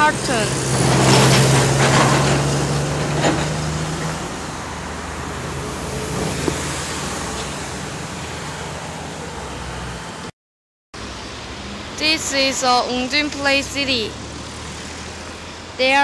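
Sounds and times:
vehicle engine hum: 0.0s - 10.3s
road traffic noise: 0.0s - 10.4s, 11.0s - 16.0s.

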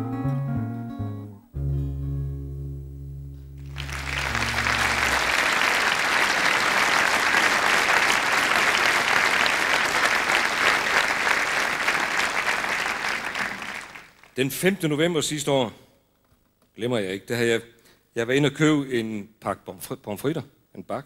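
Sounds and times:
audience applause: 3.6s - 14.4s.

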